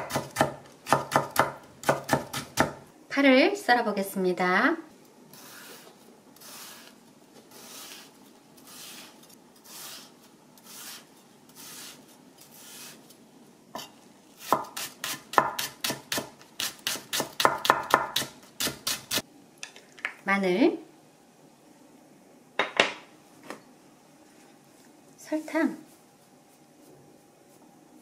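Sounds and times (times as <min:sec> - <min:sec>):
knife chopping on wooden board: 0:00.0 - 0:02.8, 0:14.5 - 0:18.3.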